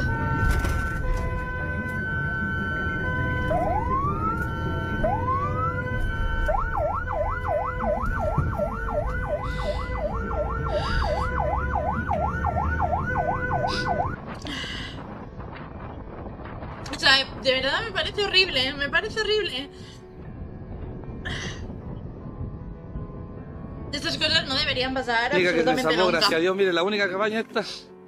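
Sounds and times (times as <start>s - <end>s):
emergency siren: 0.0s - 14.3s.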